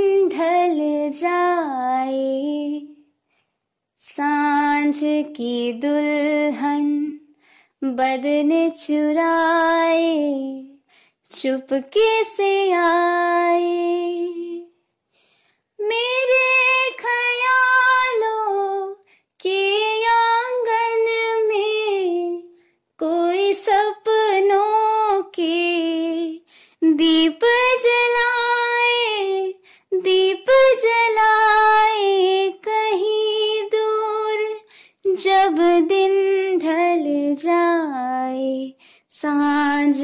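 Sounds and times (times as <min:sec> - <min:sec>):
woman singing unaccompanied: 0:00.0 - 0:03.0, 0:04.0 - 0:14.7, 0:15.8 - 0:40.0.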